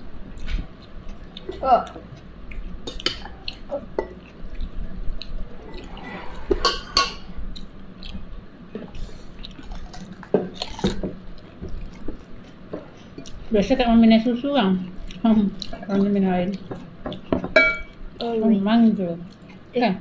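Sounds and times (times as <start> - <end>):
chewing close to microphone: 7.5 - 13.5.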